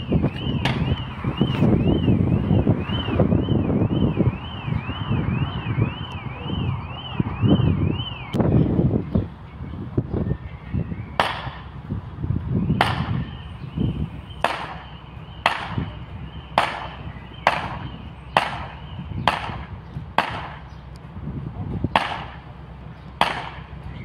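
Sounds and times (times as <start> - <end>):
level crossing alarm dinging: 13.2 - 19.1.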